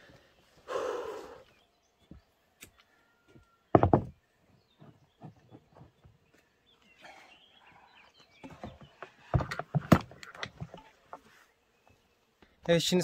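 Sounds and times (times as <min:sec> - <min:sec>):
sharp knocks and thuds: 0:03.7 - 0:04.2, 0:08.4 - 0:10.9.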